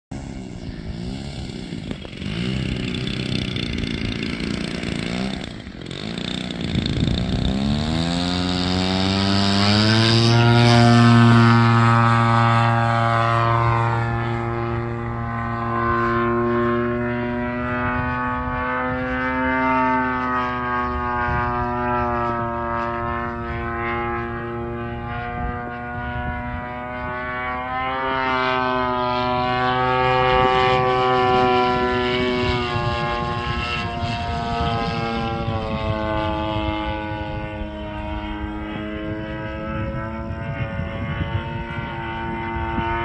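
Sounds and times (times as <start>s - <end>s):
model plane propeller drone: 0.1s - 43.0s.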